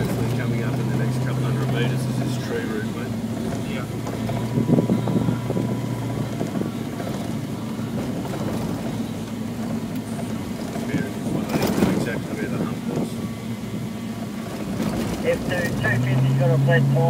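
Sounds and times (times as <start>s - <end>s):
car engine drone: 0.0s - 17.0s
tyre and road noise: 0.0s - 17.0s
knocks and rattles: 3.2s - 13.1s, 14.4s - 15.9s.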